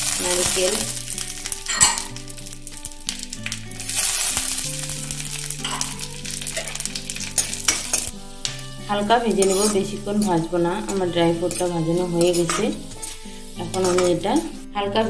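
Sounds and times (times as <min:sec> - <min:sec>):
nuts sizzling in hot fat: 0:00.0 - 0:14.8
metal spoon scraping a pan: 0:00.1 - 0:02.5, 0:05.2 - 0:08.6, 0:09.2 - 0:14.7.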